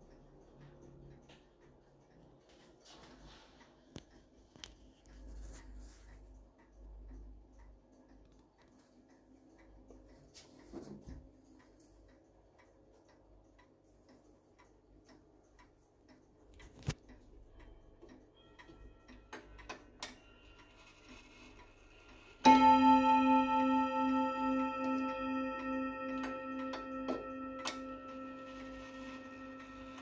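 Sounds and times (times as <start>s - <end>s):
clock movement clicks: 0.0s - 30.0s
clock ticking: 0.0s - 30.0s
clock bell striking: 22.4s - 30.0s.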